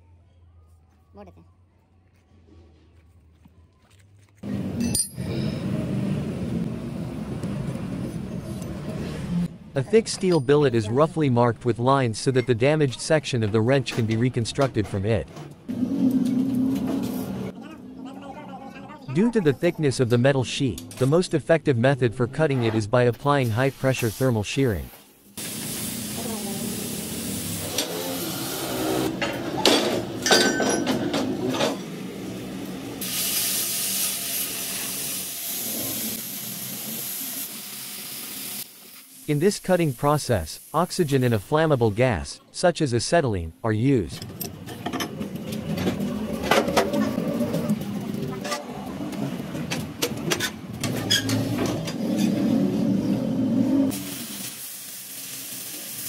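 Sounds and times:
cutting torch roaring and hissing: 25.4s - 29.2s, 32.2s - 39.3s
steel plate clanking and scraping: 29.2s - 31.8s.

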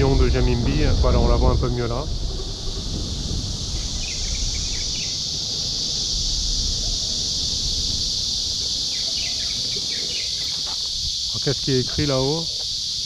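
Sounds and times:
low rumble: 0.0s - 10.0s
insect chorus drone: 0.0s - 13.0s
bird chirps: 3.7s - 5.7s, 8.8s - 10.9s.

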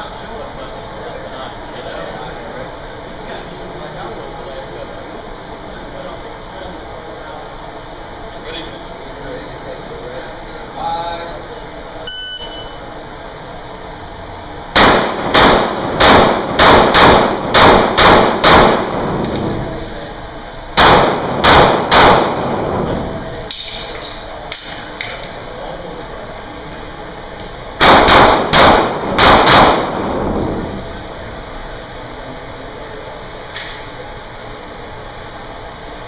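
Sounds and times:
pistol shots echoing: 14.8s - 19.2s, 20.8s - 22.5s, 27.8s - 30.2s.

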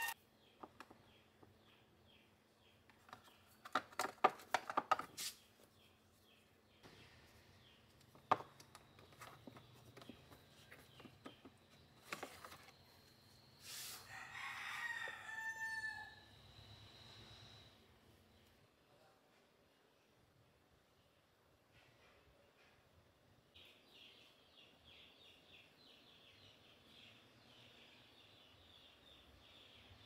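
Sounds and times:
rooster crowing: 14.0s - 16.4s.

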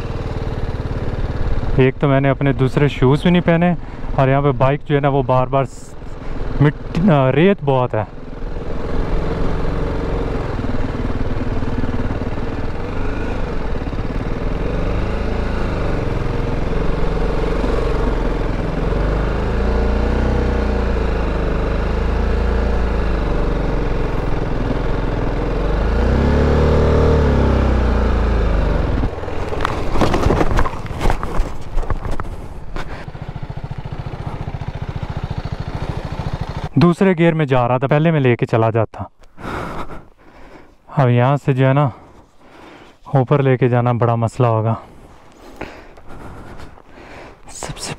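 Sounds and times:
motorcycle engine revving: 0.0s - 3.4s, 6.1s - 7.4s, 8.0s - 36.8s
knocks and scrapes of bike falling: 29.3s - 33.3s.

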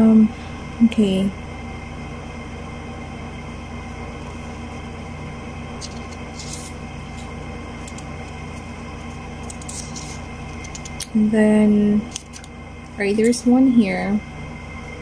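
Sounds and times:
room hum: 0.0s - 15.0s
paper rustling: 5.8s - 8.7s, 9.4s - 11.0s.

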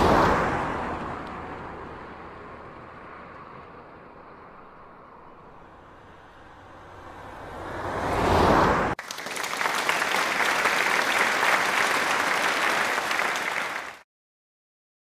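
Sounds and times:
crowd applauding: 9.0s - 14.0s.

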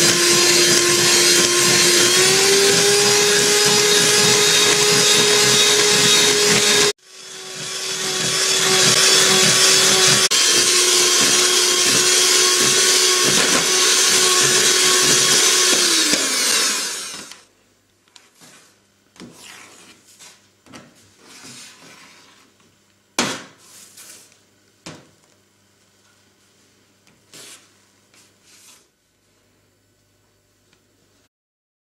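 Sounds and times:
electric hand mixer beating: 0.0s - 17.4s.

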